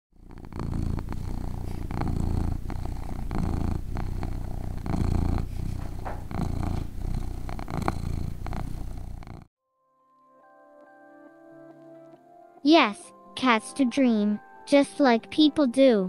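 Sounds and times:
cat purring: 0.1s - 9.5s.

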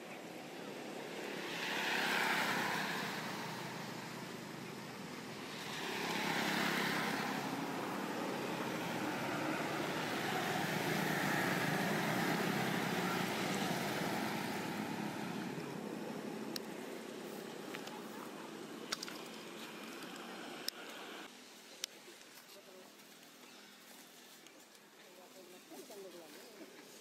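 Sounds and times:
motor vehicles passing: 0.2s - 21.3s.

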